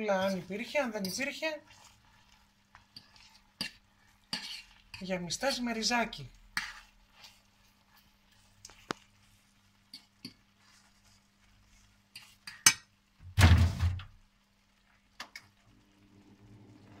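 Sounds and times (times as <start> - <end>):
fork clinking on frying pan: 12.2 - 12.9.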